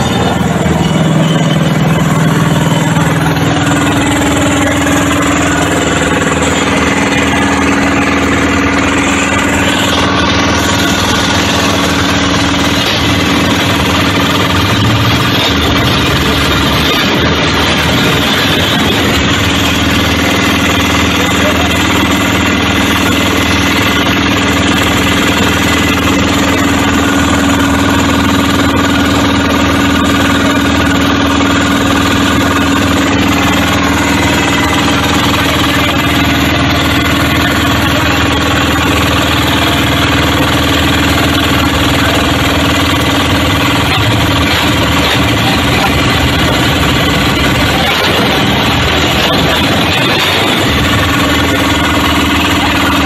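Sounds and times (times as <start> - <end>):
boat engine running steadily: 0.0 - 53.0.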